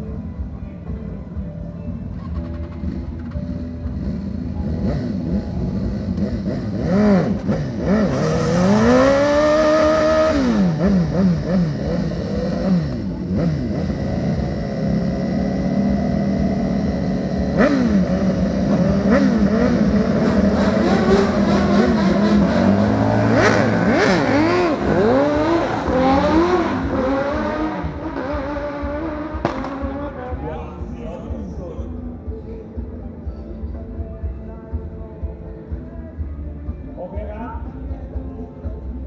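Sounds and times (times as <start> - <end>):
motorcycle engines revving: 2.2 - 32.4.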